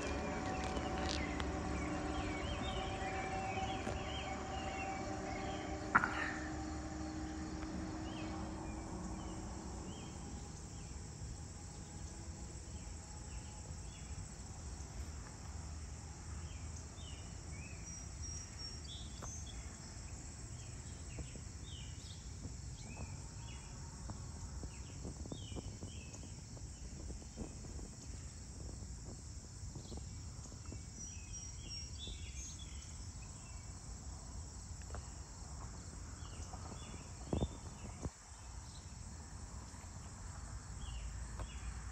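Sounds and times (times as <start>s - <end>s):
low rumble: 0.0s - 12.4s
crickets and insects chorus: 0.0s - 41.9s
sharp knock: 5.9s - 6.5s.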